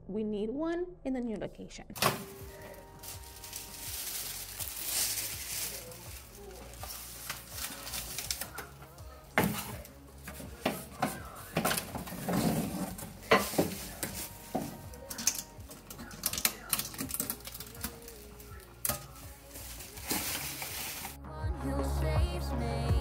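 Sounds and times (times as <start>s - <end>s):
cardboard scraping and rustling: 2.0s - 15.1s, 19.0s - 21.2s
wire racks clinking on metal: 2.0s - 21.1s.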